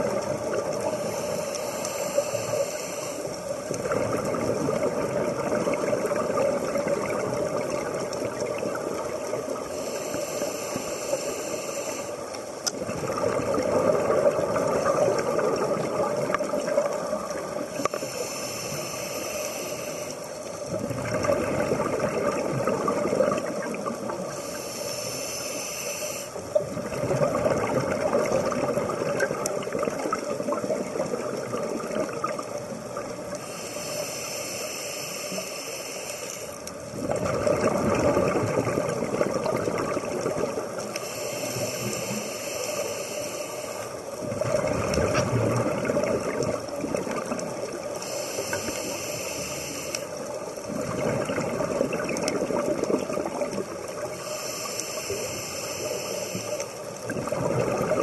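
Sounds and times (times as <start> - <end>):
rush of exhaled bubbles: 0.0 - 9.7, 12.8 - 18.1, 20.6 - 24.5, 26.4 - 33.3, 36.8 - 40.9, 44.1 - 48.9, 50.2 - 54.4, 56.8 - 58.0
diver inhaling through regulator: 0.8 - 3.6, 9.6 - 12.4, 17.7 - 20.4, 24.2 - 26.4, 33.4 - 36.7, 40.8 - 44.1, 47.9 - 50.3, 54.0 - 56.9.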